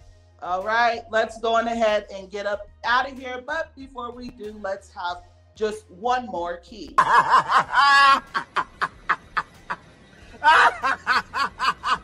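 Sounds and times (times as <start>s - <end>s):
man cackling laughter: 7.0s - 12.0s.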